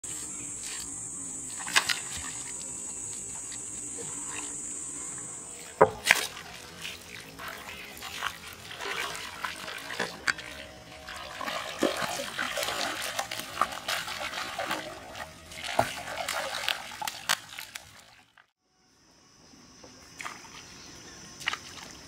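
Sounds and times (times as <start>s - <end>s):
fish thrashing and splashing: 6.0s - 18.4s.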